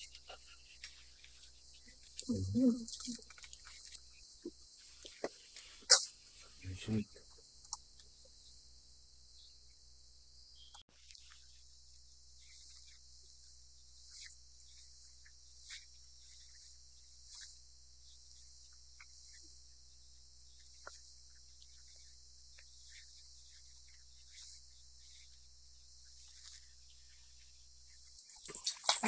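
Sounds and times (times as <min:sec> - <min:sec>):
low hum: 0:00.0 - 0:05.2
high hiss: 0:00.0 - 0:17.6.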